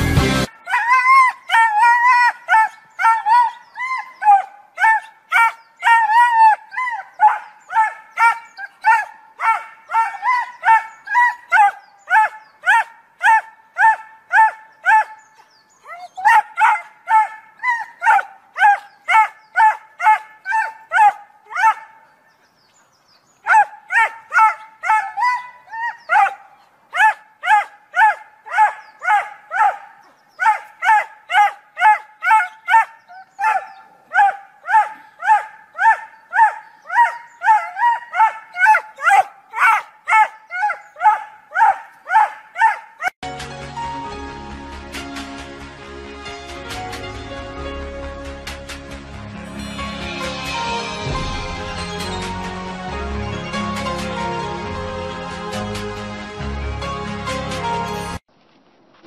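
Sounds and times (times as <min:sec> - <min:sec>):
small dog barking: 0:27.0 - 0:43.1.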